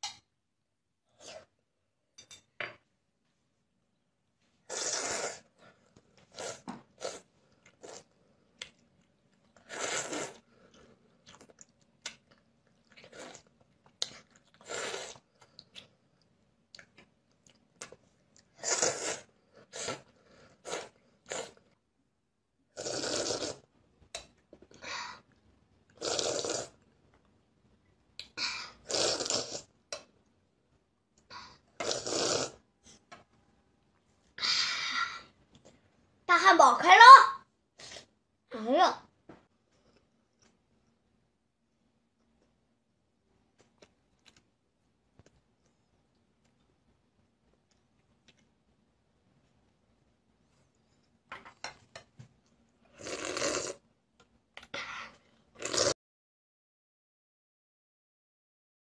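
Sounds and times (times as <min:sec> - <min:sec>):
child slurping soup: 0:04.7 - 0:08.2, 0:09.6 - 0:10.8, 0:14.6 - 0:15.3, 0:18.5 - 0:21.7, 0:22.7 - 0:23.7, 0:25.9 - 0:26.8, 0:28.4 - 0:29.8, 0:31.2 - 0:33.1, 0:52.9 - 0:53.8, 0:54.7 - 0:56.0.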